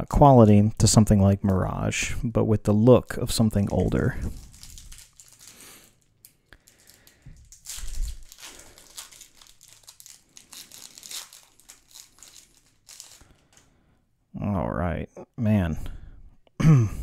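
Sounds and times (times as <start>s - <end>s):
foil wrapper tearing and crinkling: 3.6s - 13.6s.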